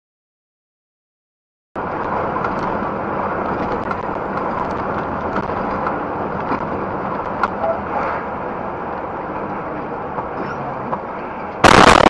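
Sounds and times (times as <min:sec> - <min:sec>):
road noise: 0:01.8 - 0:12.0
truck engine drone: 0:01.8 - 0:12.0.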